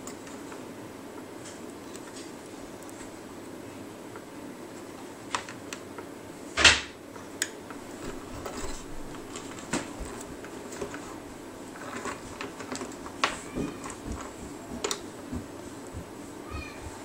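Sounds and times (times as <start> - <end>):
faint room hum: 0.0 - 17.0.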